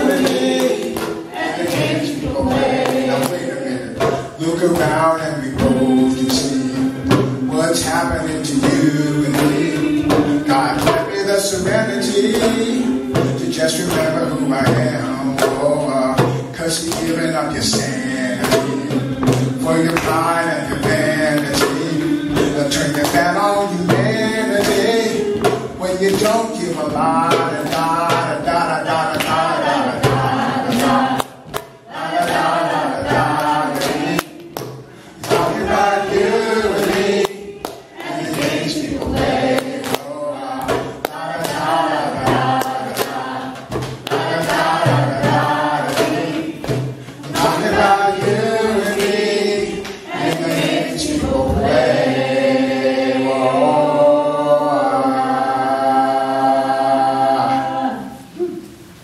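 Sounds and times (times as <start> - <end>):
hand claps: 0.0 - 7.2, 7.8 - 14.8, 15.4 - 17.8, 18.4 - 51.8
djembe beat: 0.0 - 56.2
choir singing: 0.0 - 58.5
male lead voice singing: 2.2 - 30.1.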